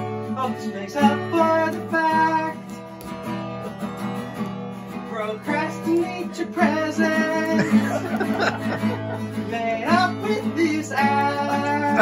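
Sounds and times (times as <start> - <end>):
acoustic guitar strumming: 0.0 - 12.0
person singing: 0.3 - 2.8, 5.1 - 12.0.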